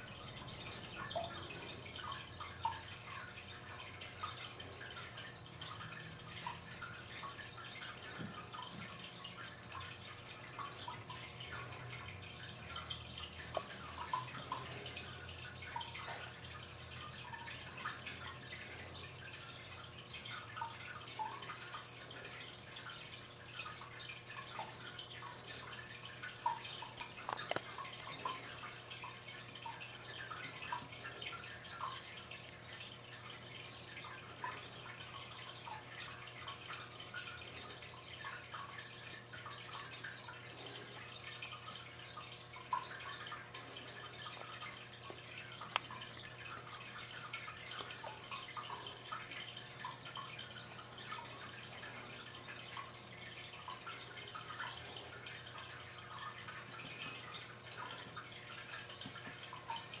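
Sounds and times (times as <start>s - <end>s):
low hum and hiss: 0.0s - 60.0s
small irregular clicks: 26.7s - 28.4s, 44.3s - 46.0s.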